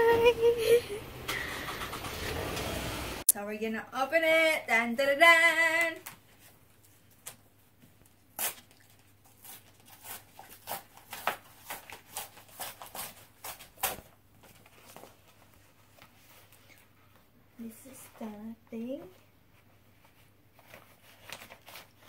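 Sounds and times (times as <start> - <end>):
paper envelope tearing: 8.3 - 14.1, 20.7 - 22.0.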